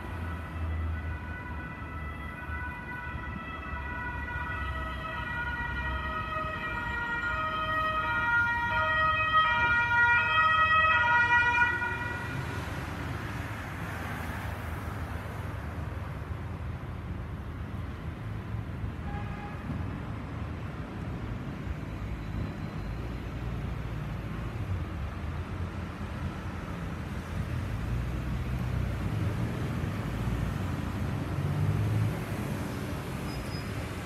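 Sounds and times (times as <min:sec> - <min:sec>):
two-tone emergency siren: 0:00.0 - 0:12.8
low traffic rumble: 0:00.0 - 0:34.0.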